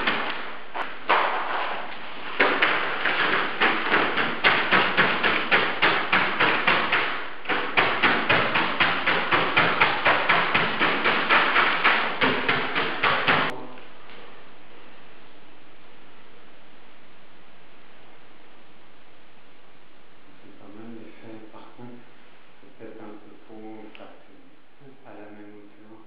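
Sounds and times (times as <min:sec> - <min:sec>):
paint implement slapping wall: 0:00.0 - 0:13.6.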